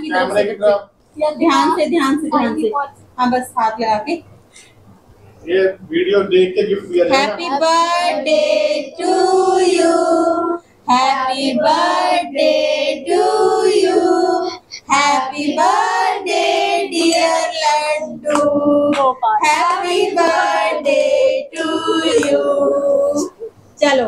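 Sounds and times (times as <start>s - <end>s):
child singing: 13.0s - 23.4s.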